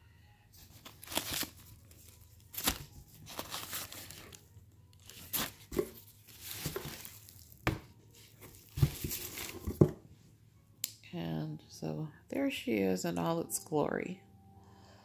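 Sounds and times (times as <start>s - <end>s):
packing wrap rustling and crinkling: 0.6s - 9.8s.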